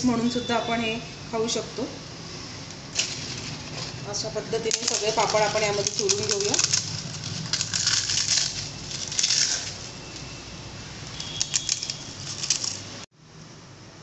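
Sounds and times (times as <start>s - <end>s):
crisp wafers crackling: 3.0s - 10.3s, 11.1s - 13.0s.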